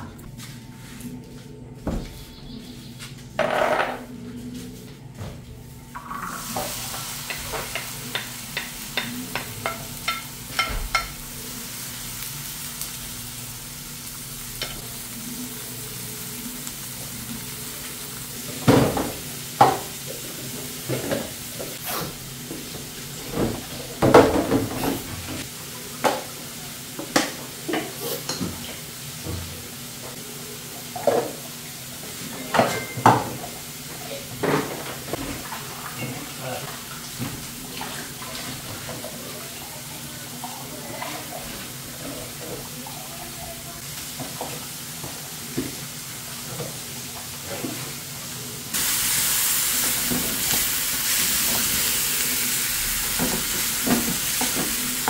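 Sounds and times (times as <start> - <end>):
onion and tomato sizzling: 5.9 - 55.0
dishes clinking in steel sink: 32.4 - 33.5.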